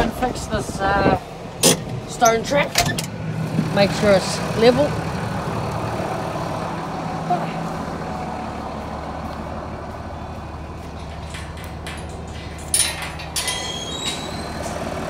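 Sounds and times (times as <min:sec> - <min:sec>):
tractor diesel engine idling: 0:00.0 - 0:15.0
clunks and rattles: 0:01.6 - 0:03.7, 0:10.4 - 0:15.0.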